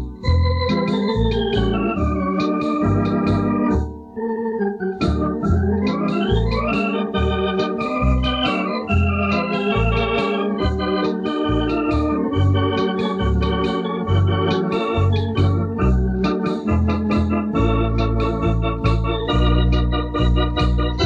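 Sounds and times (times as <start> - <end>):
electronic organ playing: 0.0 - 21.0.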